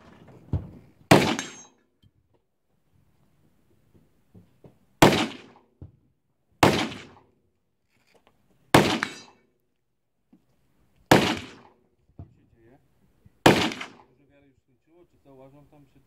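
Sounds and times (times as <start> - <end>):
gunshots with echo: 1.1 - 1.6, 5.0 - 5.6, 6.6 - 7.2, 8.7 - 9.3, 11.1 - 11.7, 13.4 - 14.1.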